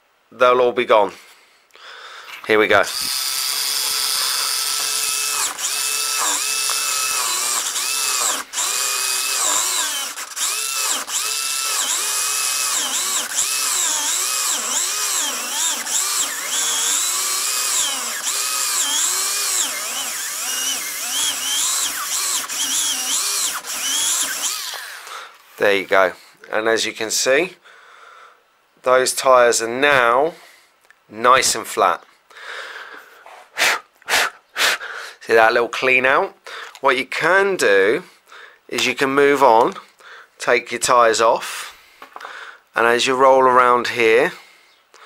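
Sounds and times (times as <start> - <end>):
rubber grinding on sandpaper: 2.9 - 20.1
small electric motor whining: 2.9 - 25.1.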